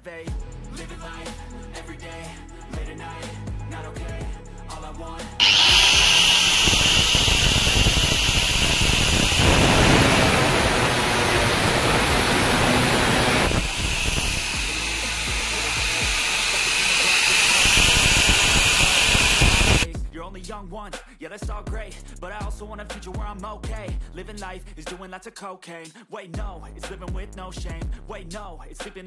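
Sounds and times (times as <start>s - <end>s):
angle grinder cutting steel: 5.4s - 19.9s.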